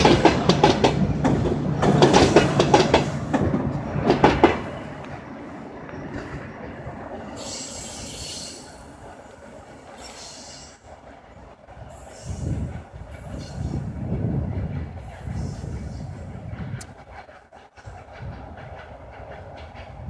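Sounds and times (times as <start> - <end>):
train rumble: 0.0 - 20.0
train wheels squealing: 5.8 - 10.9, 11.9 - 13.9.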